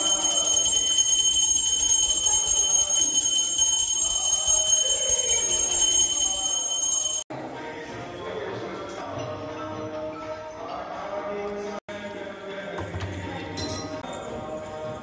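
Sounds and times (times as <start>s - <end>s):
temple bell ringing rapidly: 0.0s - 7.3s.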